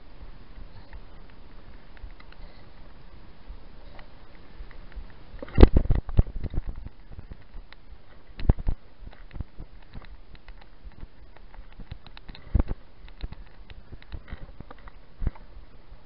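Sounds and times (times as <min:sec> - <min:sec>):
bike clicking and rattling: 0:03.8 - 0:16.0.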